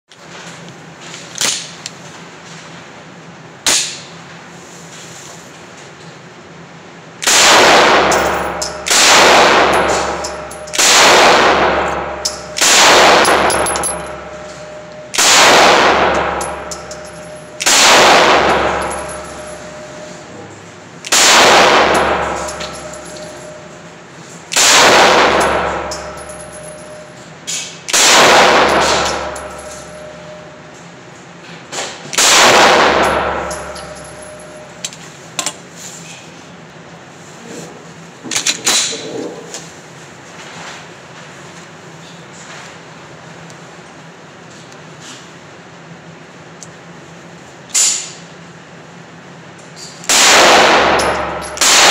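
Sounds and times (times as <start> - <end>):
pistol shots echoing: 7.2 - 20.0, 21.1 - 23.7, 24.5 - 27.0, 27.9 - 30.4, 32.2 - 34.6, 50.1 - 51.9.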